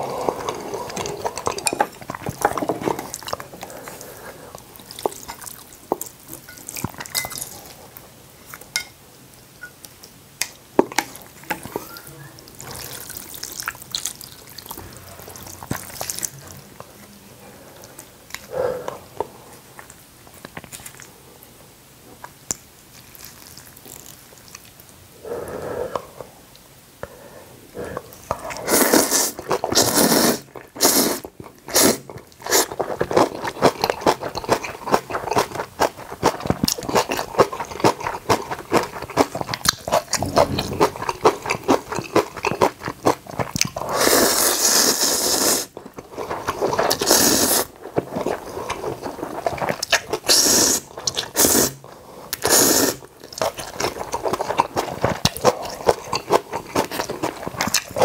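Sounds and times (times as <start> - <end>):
slurping: 27.9 - 34.0, 36.3 - 42.8, 43.8 - 58.0.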